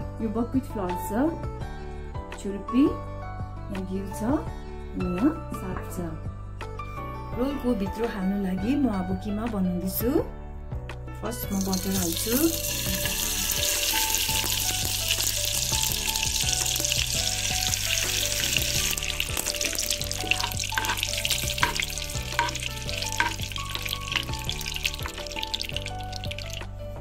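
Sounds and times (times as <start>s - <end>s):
butter sizzling in a pan: 11.5s - 26.8s
spoon stirring in a pan: 11.7s - 26.6s.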